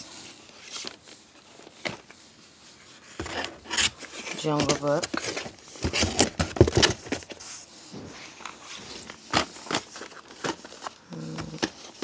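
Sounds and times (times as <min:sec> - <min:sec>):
rustling: 0:00.0 - 0:12.0
plastic cases clacking: 0:03.2 - 0:07.4, 0:08.4 - 0:12.0.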